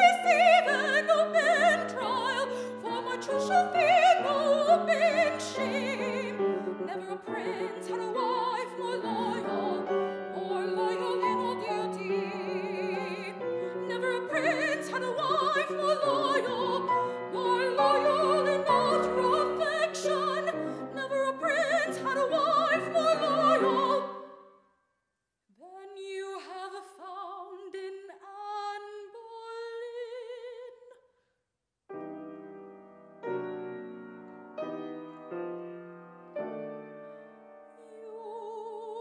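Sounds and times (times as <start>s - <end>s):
piano chords: 0.0s - 24.2s, 31.9s - 37.8s
operatic soprano singing: 0.0s - 24.4s, 25.6s - 31.0s, 37.7s - 39.0s.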